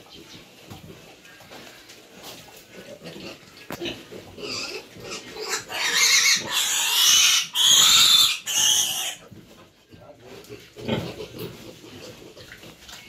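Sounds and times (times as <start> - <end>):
piglet squealing: 4.5 - 9.2.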